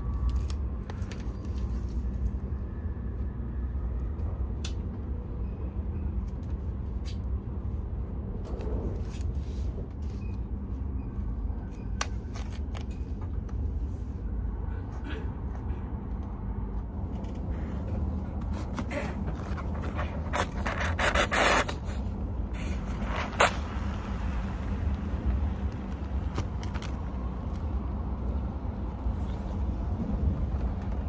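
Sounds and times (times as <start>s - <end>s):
train low rumble: 0.0s - 31.0s
scraping and clicking of box handling: 18.3s - 21.9s.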